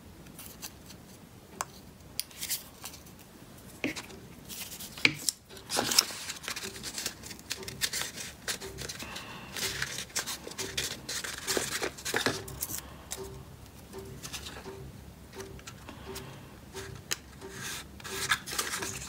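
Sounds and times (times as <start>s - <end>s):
paper and cardboard rustling: 2.3s - 12.9s, 16.8s - 19.0s.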